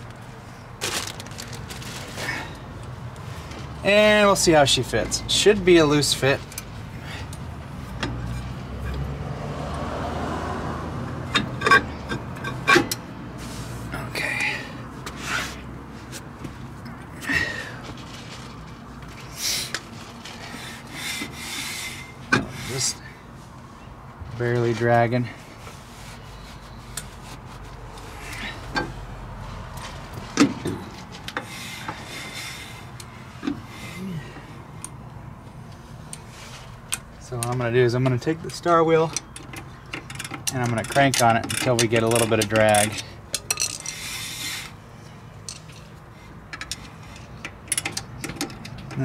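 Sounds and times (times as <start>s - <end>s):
sharp metallic clicks and knocks: 36.9s - 44.0s, 46.5s - 49.0s.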